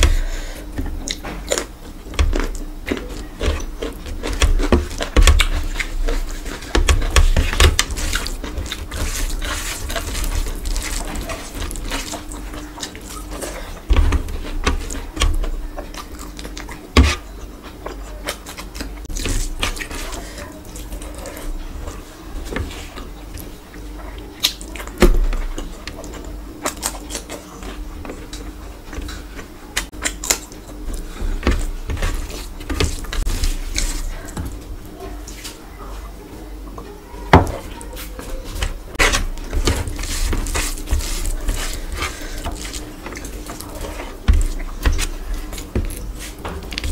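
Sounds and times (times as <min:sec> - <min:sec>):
close-up eating sounds: 0:00.0 - 0:46.9
hand squelching rice and curry: 0:02.6 - 0:17.8, 0:38.8 - 0:46.9.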